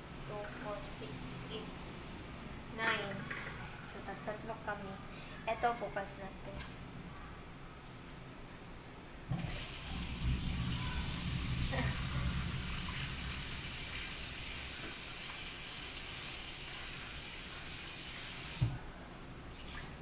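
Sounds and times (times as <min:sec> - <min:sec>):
tap water splashing into a pan: 0:12.8 - 0:18.8.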